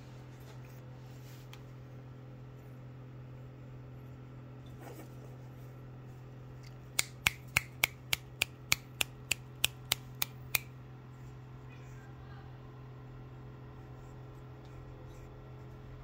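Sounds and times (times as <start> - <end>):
steady low hum: 0.0 - 16.0
hand-made clicks: 6.6 - 10.7.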